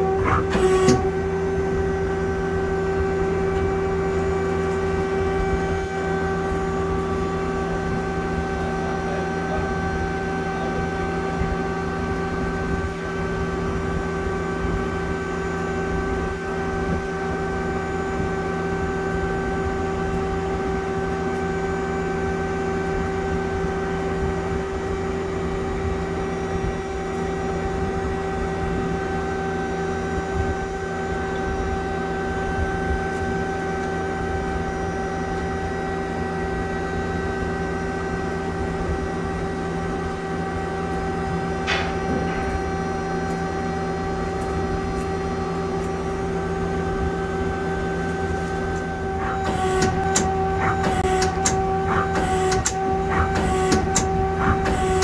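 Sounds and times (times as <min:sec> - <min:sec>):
lathe humming: 0:48.4 - 0:55.0.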